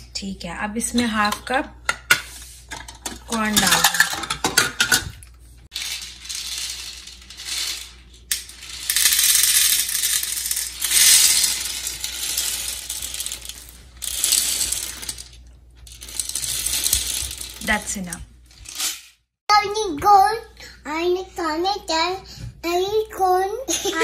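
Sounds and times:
popcorn kernels rattling into plastic: 3.2s - 5.0s, 5.7s - 18.0s.

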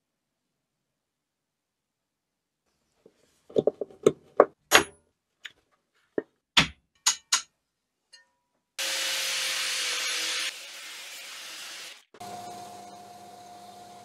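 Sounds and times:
power tool grinding metal: 8.8s - 13.0s.

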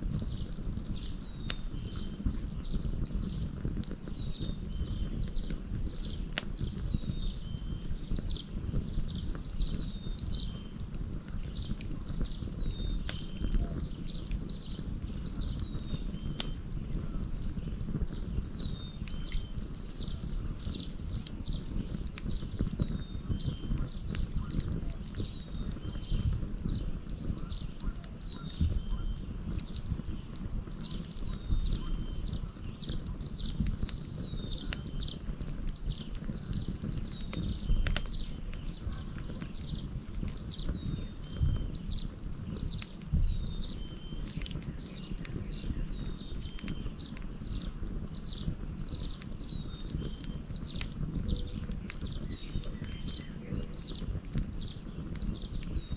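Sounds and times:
wood fire crackling and popping: 0.0s - 55.9s.

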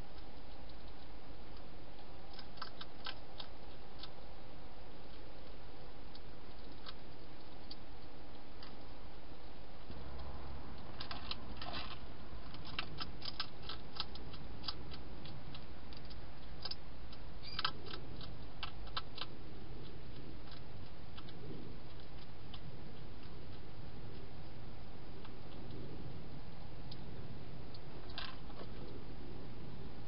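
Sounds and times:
hedgehog crunching dry food: 0.0s - 30.0s.

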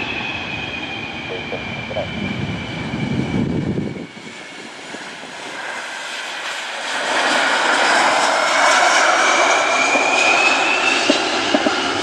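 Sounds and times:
jet engine hiss and whine: 0.0s - 12.0s.

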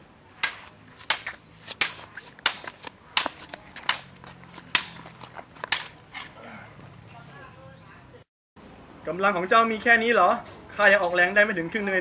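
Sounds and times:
swords clashing: 0.4s - 5.1s, 5.7s - 6.4s.

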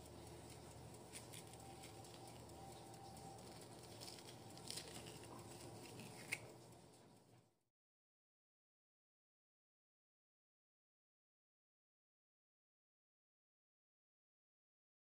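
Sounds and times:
metal spoon scraping zucchini: 0.0s - 6.7s
low steady hum: 0.0s - 7.6s.

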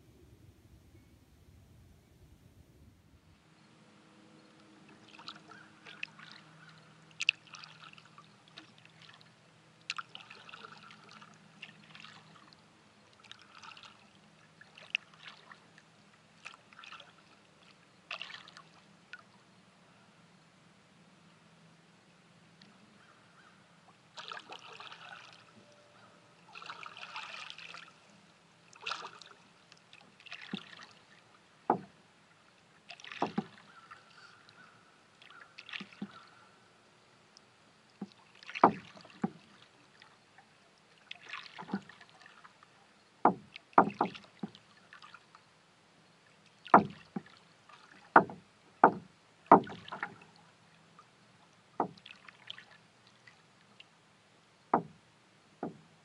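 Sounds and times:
paddle splashes in water: 4.9s - 15.8s, 16.4s - 19.3s, 24.1s - 32.0s, 32.8s - 36.5s, 37.9s - 45.4s, 46.5s - 50.5s, 51.8s - 53.8s.

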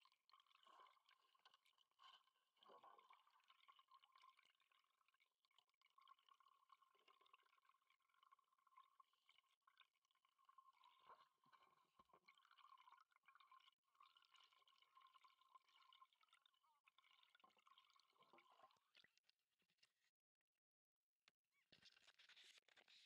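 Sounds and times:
faint crackles: 21.6s - 23.0s.

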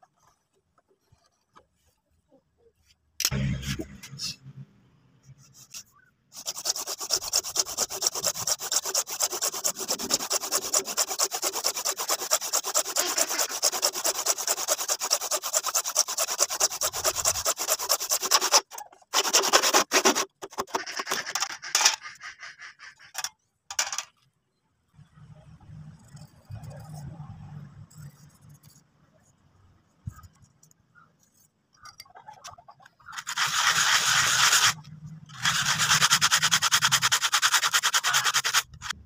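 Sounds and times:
hand saw cutting plastic pipe: 6.4s - 23.3s, 33.1s - 39.0s.

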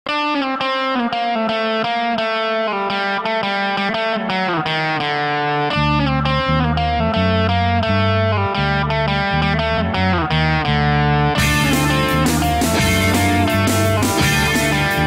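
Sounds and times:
electric guitar riff: 0.1s - 15.0s
low bass notes: 5.7s - 15.0s.

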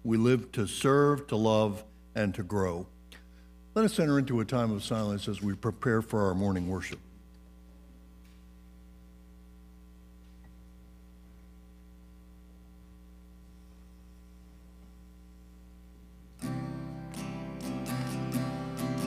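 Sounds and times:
low electrical hum: 0.0s - 19.0s
instrumental music: 16.4s - 19.0s.

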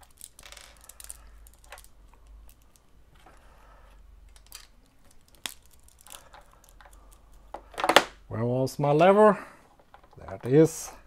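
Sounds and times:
plastic parts clicking together: 0.0s - 3.3s, 4.2s - 8.2s, 9.7s - 10.8s
plastic parts rubbing: 0.0s - 8.2s, 9.6s - 11.0s.

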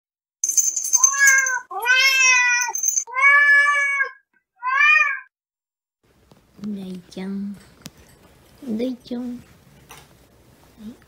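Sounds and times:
cat meowing: 1.0s - 5.3s.

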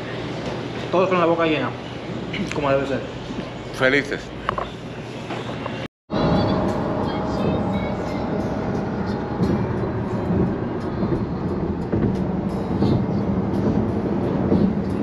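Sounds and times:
car road and engine noise: 6.1s - 15.0s.

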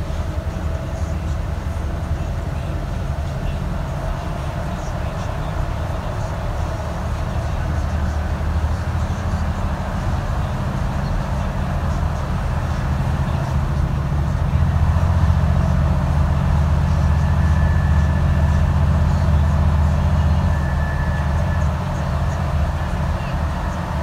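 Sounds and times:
bus engine drone: 0.0s - 24.0s.

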